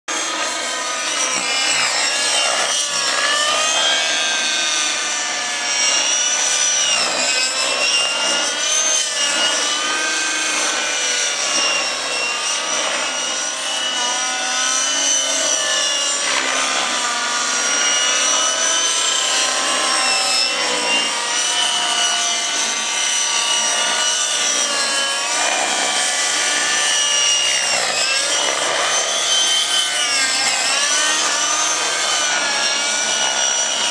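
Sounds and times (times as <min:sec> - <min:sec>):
model helicopter engines whining: 0:00.1 - 0:33.9.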